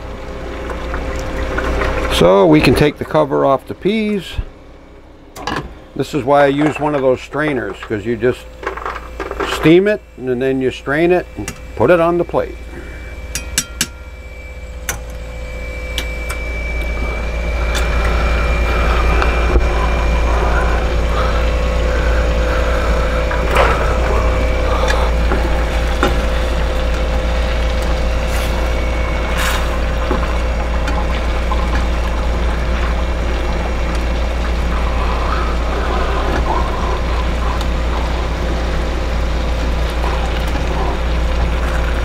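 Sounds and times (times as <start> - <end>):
low hum: 0.0 - 42.0
utensils knocking against pans: 13.3 - 14.0
vinegar bubbling in skillet: 16.8 - 42.0.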